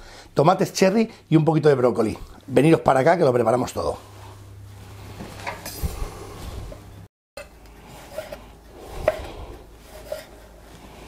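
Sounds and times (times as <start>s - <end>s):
knife slicing tomatoes: 8.0s - 10.3s.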